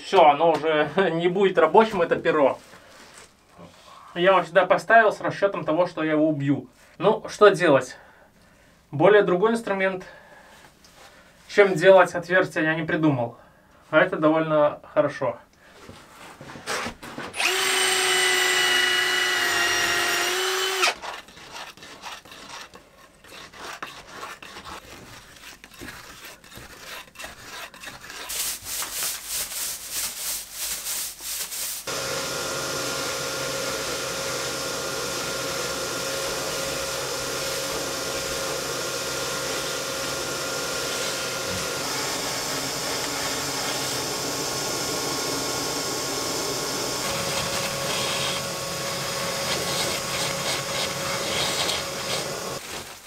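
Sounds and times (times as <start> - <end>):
shop vacuum running: 17.4 - 20.9, 31.8 - 53.0
cordless drill whining: 17.4 - 21.0, 31.9 - 52.6
brush scraping a wall: 21.0 - 32.7, 34.0 - 53.0.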